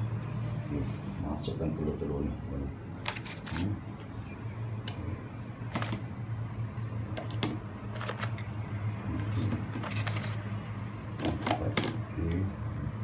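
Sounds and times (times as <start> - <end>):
eggs tapping plastic container: 7.2 - 8.3.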